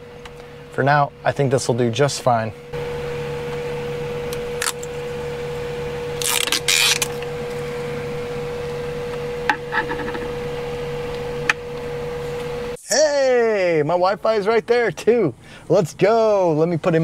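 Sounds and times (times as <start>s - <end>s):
steady hum: 0.0s - 17.0s
wiring and plastic rustling: 6.2s - 7.3s.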